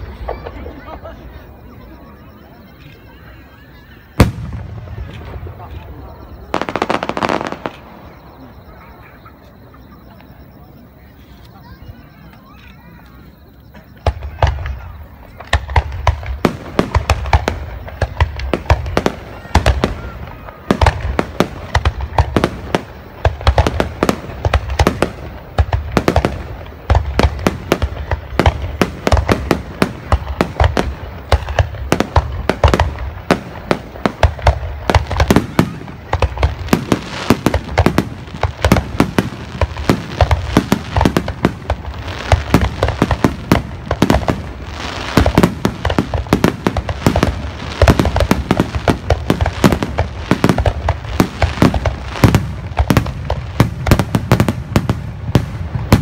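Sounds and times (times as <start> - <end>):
firework crackling: 0.0 - 56.0
fireworks bursting: 0.0 - 56.0.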